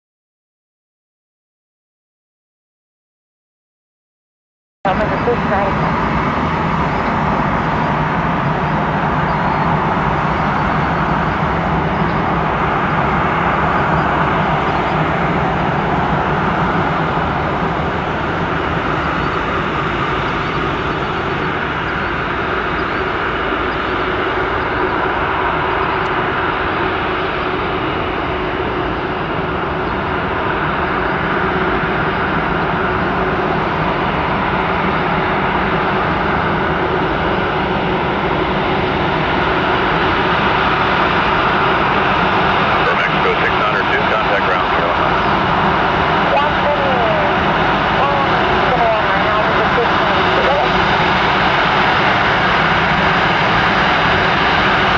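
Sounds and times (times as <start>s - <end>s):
jet engines running: 4.9s - 54.9s.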